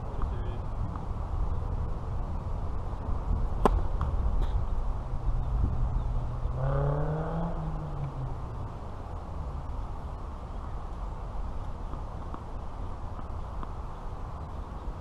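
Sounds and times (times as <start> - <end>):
steady low rumble: 0.0 - 15.0
tennis ball struck by racket: 3.5 - 4.2.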